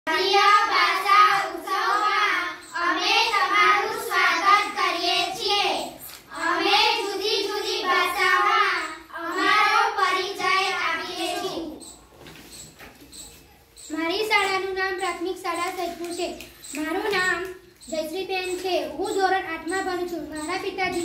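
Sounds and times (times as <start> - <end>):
girls singing in unison: 0.1 - 11.9.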